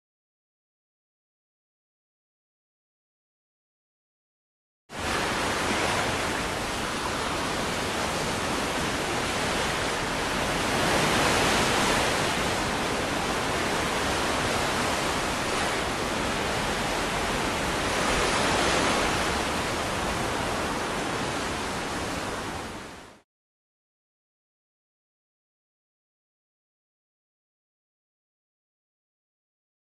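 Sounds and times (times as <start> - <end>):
ocean waves: 4.9 - 23.2.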